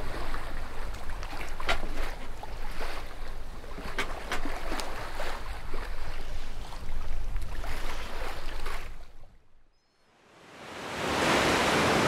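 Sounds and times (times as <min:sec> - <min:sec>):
ocean waves washing: 0:10.2 - 0:12.0
wave crests splashing: 0:10.4 - 0:12.0.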